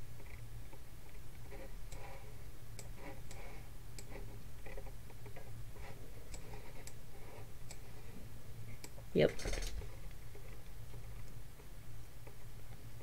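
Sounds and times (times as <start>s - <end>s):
low steady hum: 0.0s - 13.0s
computer mouse clicking: 2.8s - 5.4s, 6.3s - 7.0s.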